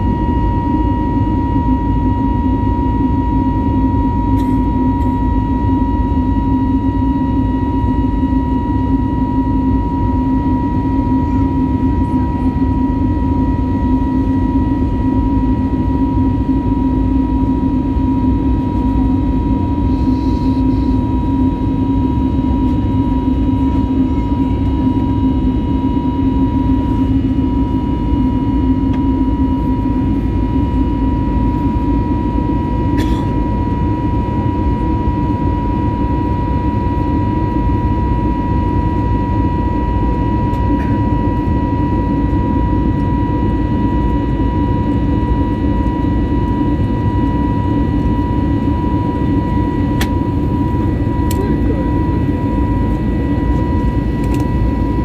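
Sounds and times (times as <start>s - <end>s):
engine and airflow rush: 45.2s - 55.0s.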